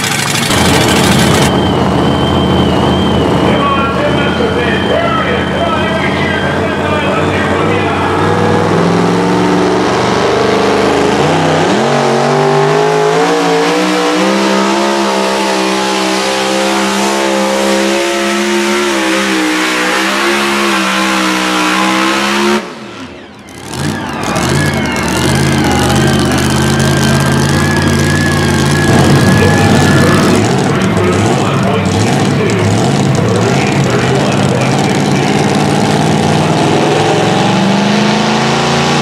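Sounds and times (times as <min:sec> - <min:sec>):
engine idling: 0:00.0 - 0:08.8, 0:23.0 - 0:36.5
truck engine revving under load: 0:00.0 - 0:39.0.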